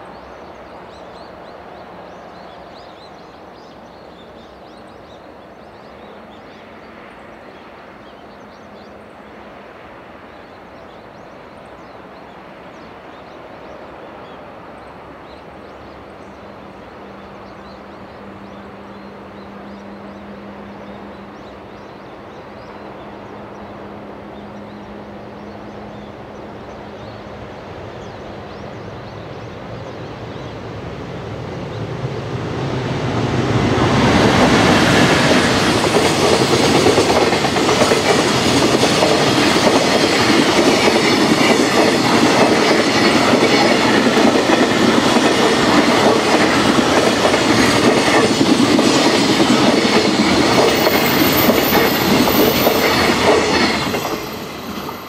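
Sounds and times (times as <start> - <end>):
freight train rumbling: 0.0 - 55.0
wheels clacking over rails: 34.2 - 55.0.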